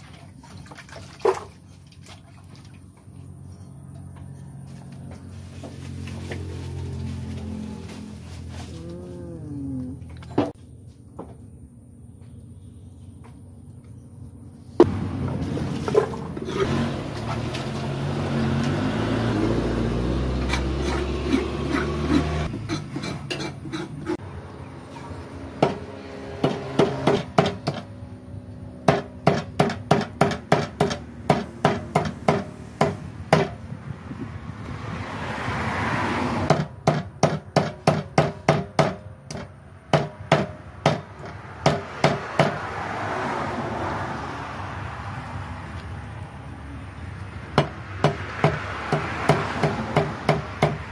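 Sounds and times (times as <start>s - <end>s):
cleaver chopping on wooden block: 28.9s - 33.6s, 47.6s - 50.9s.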